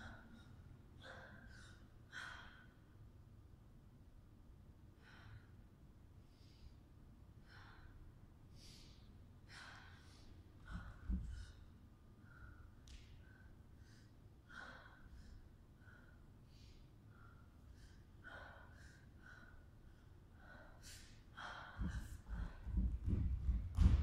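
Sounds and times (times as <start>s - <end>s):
person breathing: 6.2s - 23.3s.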